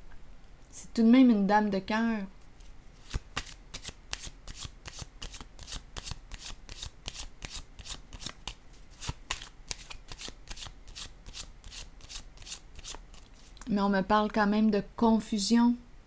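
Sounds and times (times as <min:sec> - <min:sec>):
cards being shuffled: 0:02.5 - 0:13.7.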